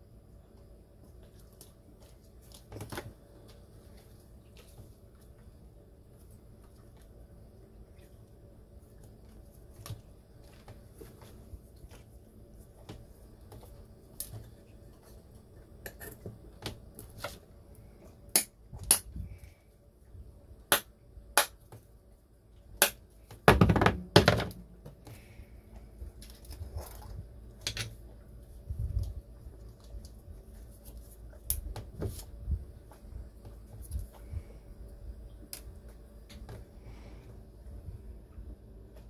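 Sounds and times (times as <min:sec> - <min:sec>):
objects knocking on wooden floor: 0:23.4 - 0:25.0.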